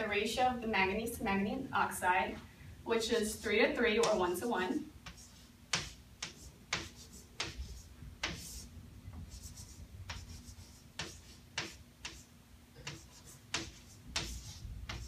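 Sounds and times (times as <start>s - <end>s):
chalk tapping on chalkboard: 4.0s - 4.3s, 5.0s - 15.0s
chalk scratching on chalkboard: 5.0s - 15.0s.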